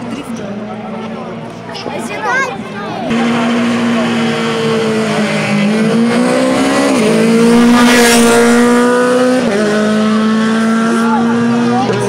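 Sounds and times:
rally car passing at high revs: 0:03.1 - 0:12.0.

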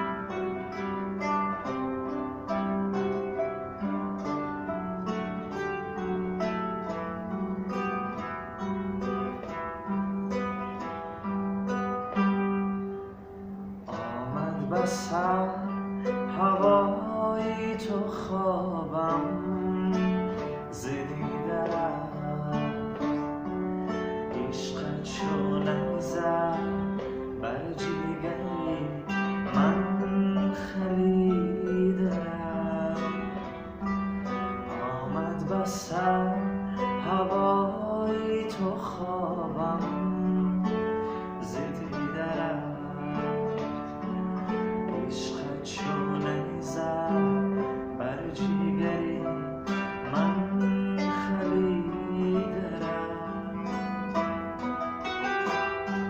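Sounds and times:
plucked zither runs: 0:00.0 - 0:56.0
man singing: 0:13.8 - 0:33.6, 0:34.2 - 0:54.4.

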